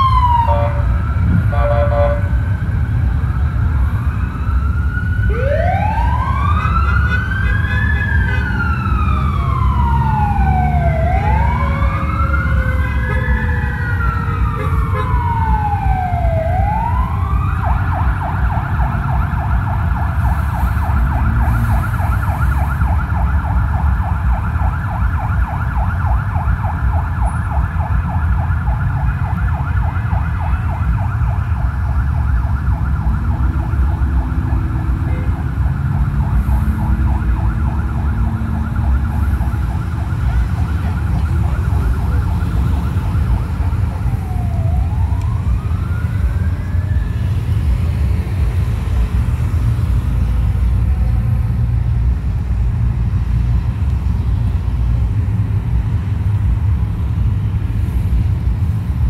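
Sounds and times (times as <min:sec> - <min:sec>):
second overlapping siren: 0:00.0 - 0:54.6
emergency siren wailing and yelping: 0:00.0 - 0:55.1
low engine rumble: 0:30.4 - 0:59.0.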